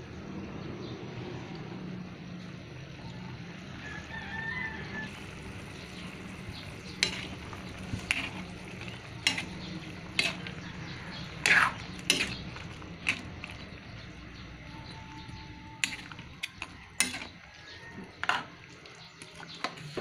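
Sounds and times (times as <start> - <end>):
metal ladle scraping a wok: 5.9 - 14.2, 14.8 - 18.6.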